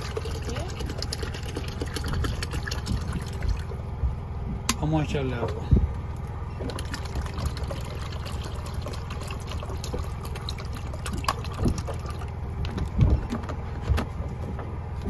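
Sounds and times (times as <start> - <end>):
water trickling and splashing: 0.0 - 3.8, 6.5 - 13.1
steady low hum: 0.0 - 15.0.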